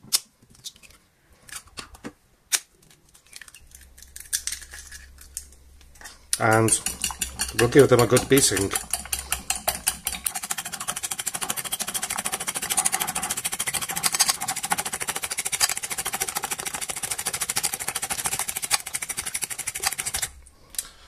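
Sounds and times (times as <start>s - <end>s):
fork beating eggs on a plate: 6.0s - 20.4s.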